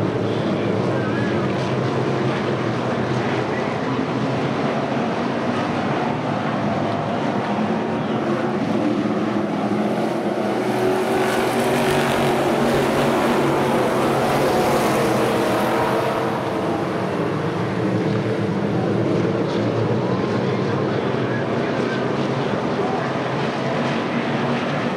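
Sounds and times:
race car engines: 0:00.0 - 0:24.9.

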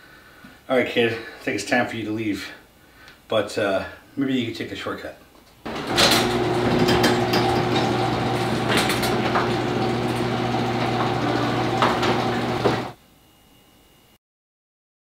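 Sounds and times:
clicks and rattles: 0:05.7 - 0:10.2
electric motor running: 0:05.7 - 0:13.0.

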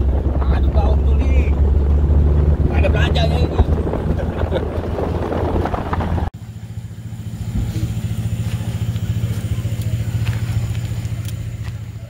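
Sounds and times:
pickup driving on dirt road: 0:00.0 - 0:12.0
small engine running steadily: 0:00.0 - 0:12.0.

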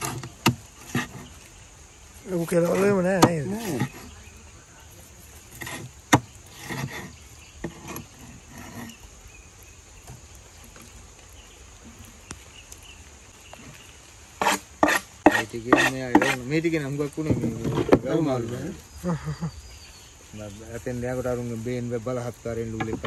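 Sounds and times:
knife cutting on wooden board: 0:14.4 - 0:16.4.

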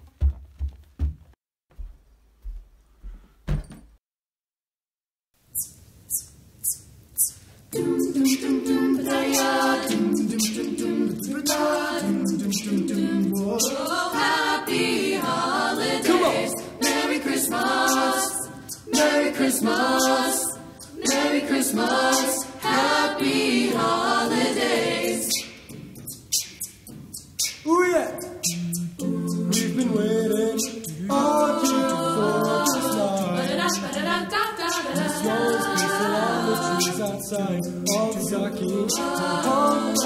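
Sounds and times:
voices singing a cappella: 0:07.7 - 0:26.7, 0:27.4 - 0:40.0.

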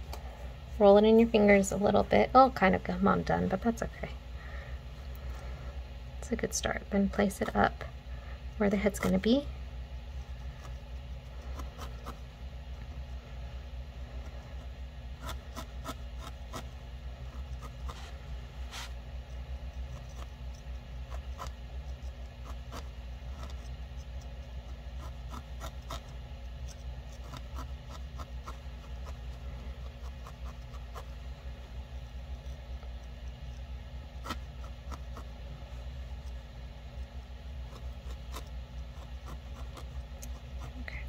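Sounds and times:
steady low hum: 0:00.0 - 0:41.0
felting needle jabbing wool: 0:10.0 - 0:13.2, 0:14.1 - 0:41.0.

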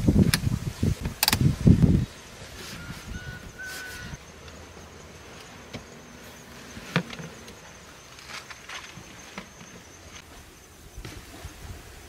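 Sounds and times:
small clicks: 0:01.1 - 0:01.4.

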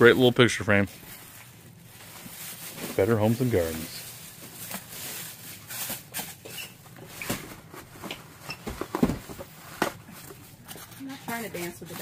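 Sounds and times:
plastic bag crinkling: 0:00.1 - 0:08.4.

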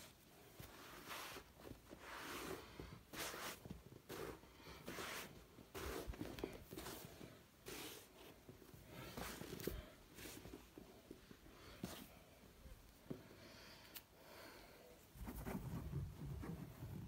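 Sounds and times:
fabric rustling on carpet: 0:00.0 - 0:12.4.

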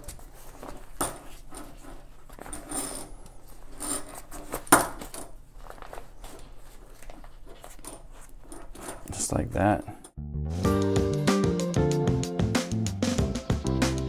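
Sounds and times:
fabric rustling: 0:00.0 - 0:09.2.

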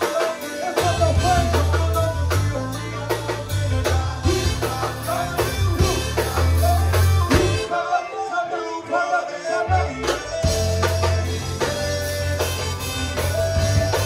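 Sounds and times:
drum-kit beat: 0:00.0 - 0:07.7, 0:10.0 - 0:14.0
live band playing: 0:00.0 - 0:14.0
low bass notes: 0:00.8 - 0:07.7, 0:09.7 - 0:14.0.

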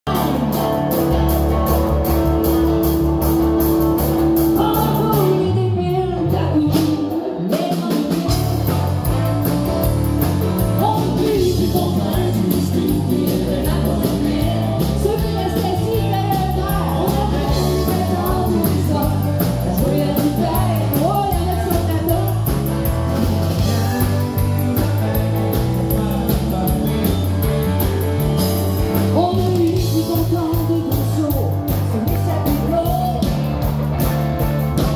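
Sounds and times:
country-rock band playing: 0:00.0 - 0:34.9
woman singing lead: 0:04.4 - 0:08.8, 0:10.7 - 0:22.8, 0:29.0 - 0:33.7.

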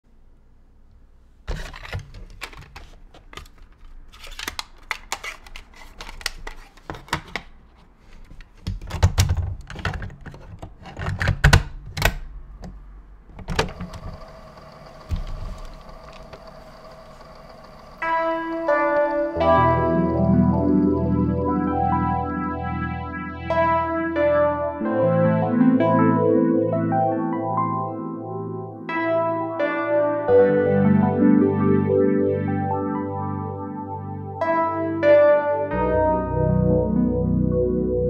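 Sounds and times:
cassette case clicks and clatters: 0:01.5 - 0:07.5, 0:08.4 - 0:12.3, 0:13.3 - 0:17.4
tape hiss: 0:12.9 - 0:23.4
keyboard music: 0:13.8 - 0:38.0.

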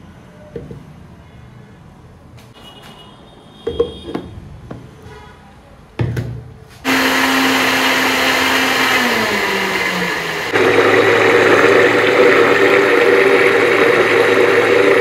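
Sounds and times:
blender motor running: 0:06.9 - 0:15.0.

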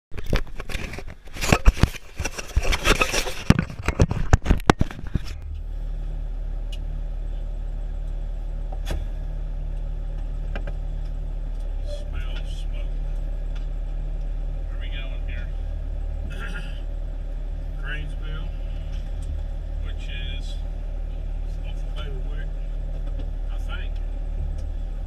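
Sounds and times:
fire engine diesel idling: 0:05.3 - 0:25.0.

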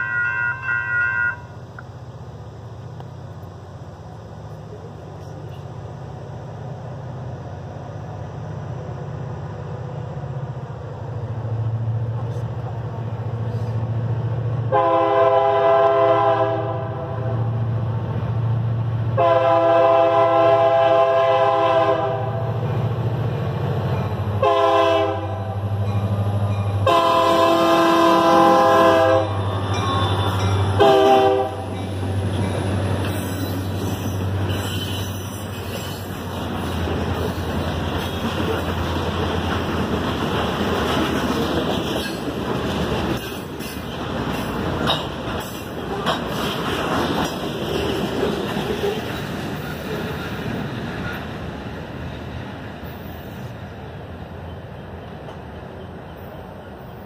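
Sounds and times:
train air horn blasts: 0:00.0 - 0:01.6, 0:14.7 - 0:17.5, 0:19.2 - 0:22.5, 0:24.4 - 0:25.7, 0:26.8 - 0:31.8
locomotive engine rumble: 0:00.0 - 0:57.0
train wheels rumbling on rails: 0:00.0 - 0:57.0.

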